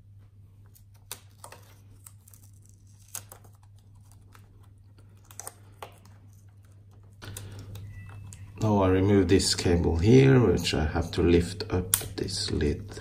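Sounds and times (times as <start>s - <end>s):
low hum: 6.0s - 13.0s
sharp plastic snaps: 11.8s - 12.2s.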